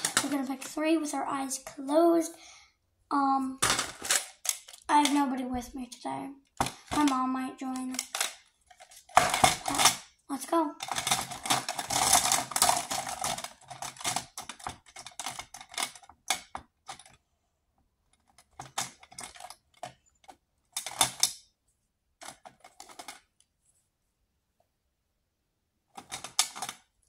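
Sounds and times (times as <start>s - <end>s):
plastic markers clattering in a cup: 0.0s - 0.8s, 3.6s - 5.3s, 6.6s - 10.0s, 10.8s - 17.1s, 18.4s - 20.0s, 22.2s - 23.3s, 26.0s - 26.9s.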